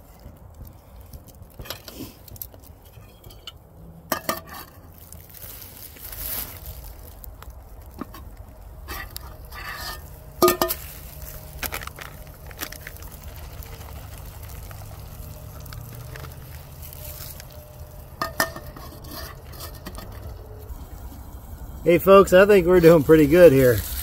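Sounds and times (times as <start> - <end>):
green beans frying in a pan: 4.9 - 19.0, 20.7 - 24.0
metal pan and lid clinking: 9.6 - 10.8, 18.2 - 20.3.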